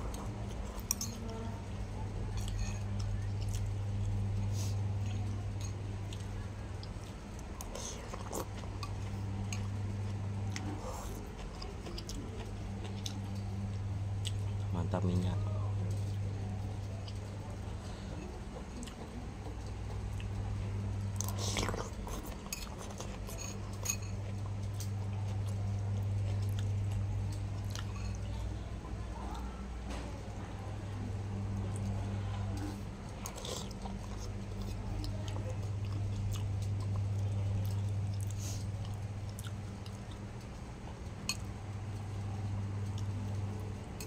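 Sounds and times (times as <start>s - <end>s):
steady low hum: 0.0s - 44.0s
man chewing noodles: 6.0s - 14.9s, 18.0s - 20.5s, 21.1s - 28.0s, 32.5s - 42.0s.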